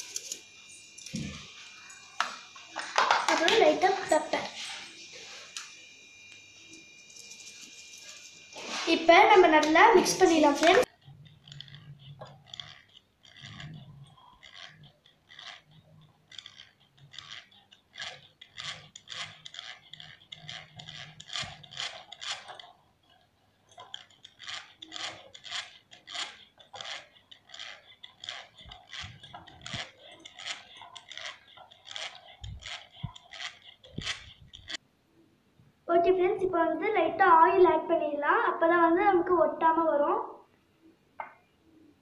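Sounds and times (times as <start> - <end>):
whisk beating eggs in metal bowl: 7.2 - 34.8.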